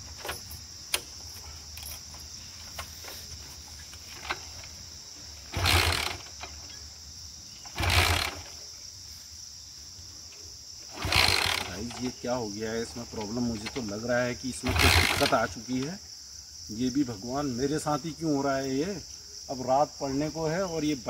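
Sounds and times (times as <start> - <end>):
crickets or cicadas droning: 0.0 - 21.0
motorcycle engine cranking: 3.7 - 4.8, 5.4 - 6.9, 7.6 - 8.6, 10.8 - 15.9.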